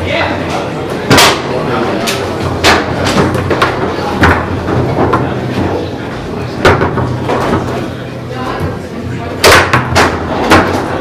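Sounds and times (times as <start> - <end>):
background chatter: 0.0 - 11.0
table football ball knocks: 9.4 - 10.9.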